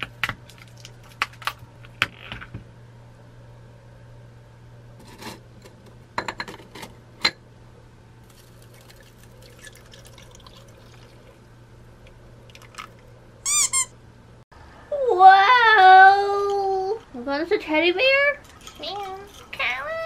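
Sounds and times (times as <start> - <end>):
milk pouring trickle: 8.3 - 11.5, 12.5 - 13.0
short high-pitched squeaks: 13.5 - 14.0.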